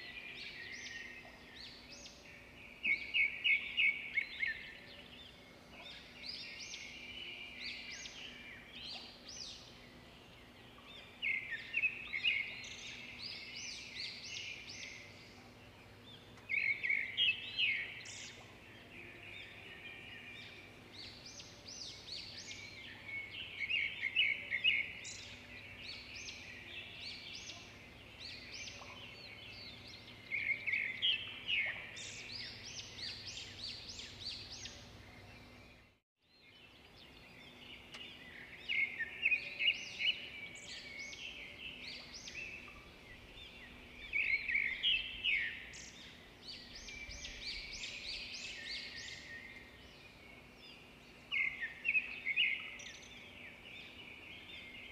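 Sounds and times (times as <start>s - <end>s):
birds chirping: 0.0s - 54.9s.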